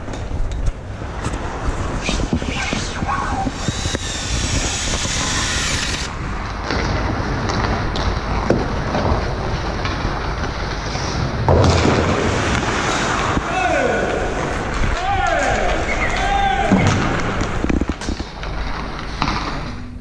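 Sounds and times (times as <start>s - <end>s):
steady low rumble: 0.0s - 13.5s
skate blades scraping ice: 1.0s - 16.3s
cordless drill boring into ice: 3.5s - 6.1s.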